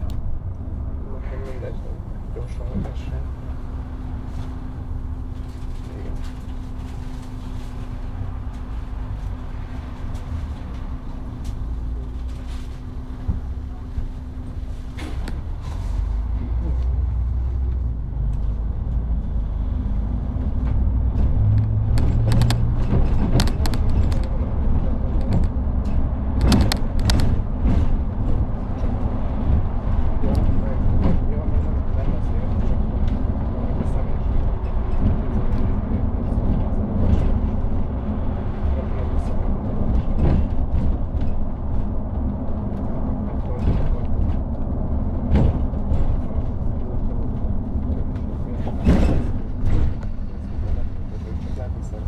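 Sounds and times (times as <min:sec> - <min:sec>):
bus engine rumble: 0:00.0 - 0:52.0
bus idling hum: 0:00.0 - 0:52.0
sharp clicks and knocks: 0:20.6 - 0:29.0.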